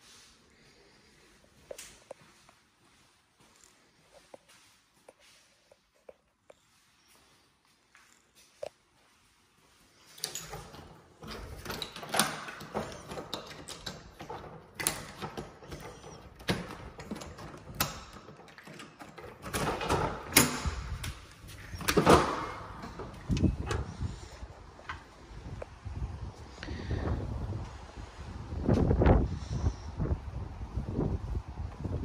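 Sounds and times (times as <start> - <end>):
door lock and handle rattling: 10.1 - 25.1
door swinging open: 10.2 - 25.4.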